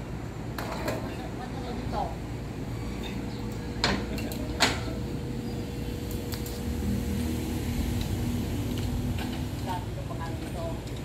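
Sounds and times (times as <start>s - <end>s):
engine drone: 2.2s - 10.6s.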